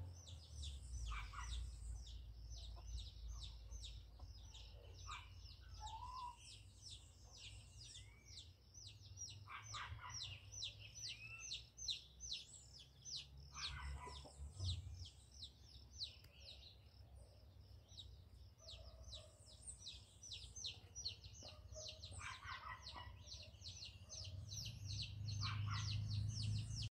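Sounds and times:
lower bird calls: 4.5 - 8.6.

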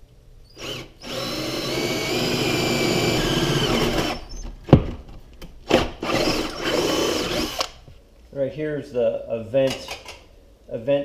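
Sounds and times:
cordless drill boring wood: 0.5 - 4.4, 6.0 - 7.8.

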